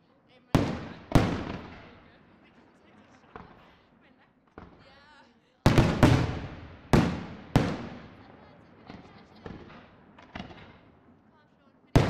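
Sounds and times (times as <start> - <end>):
faint firework pops: 0.6 - 2.1, 3.2 - 3.7, 4.5 - 5.1, 5.7 - 11.0
firework bangs echoing: 0.6 - 2.2, 4.5 - 11.2.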